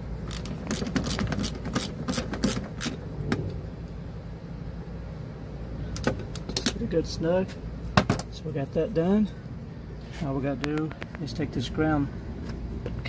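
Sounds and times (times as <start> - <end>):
low steady hum: 0.0 - 13.0
socket ratchet clicking: 0.3 - 3.0.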